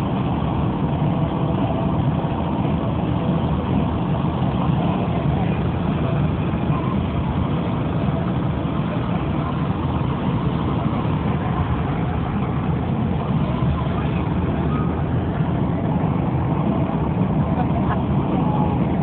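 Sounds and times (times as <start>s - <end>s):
car engine rumble: 0.0s - 19.0s
road noise inside car: 0.0s - 19.0s.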